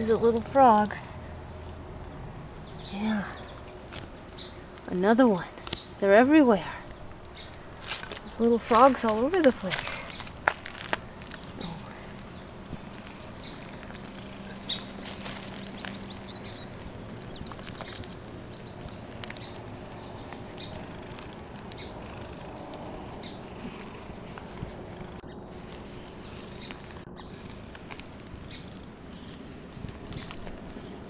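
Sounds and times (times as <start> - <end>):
cat purring: 19.2 - 27.5.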